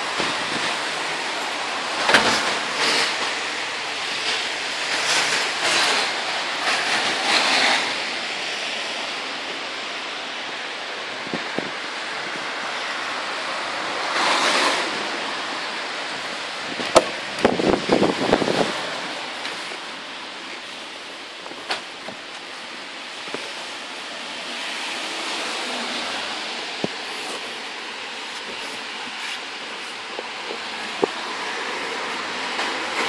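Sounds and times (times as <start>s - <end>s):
wind noise on microphone: 0.0s - 8.4s, 10.9s - 12.9s, 15.7s - 19.8s
rain on wet pavement: 0.0s - 33.0s.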